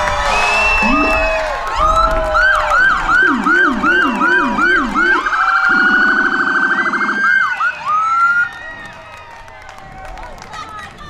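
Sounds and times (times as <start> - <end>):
fire truck siren yelping: 0.4 - 8.6
slower siren: 0.5 - 8.6.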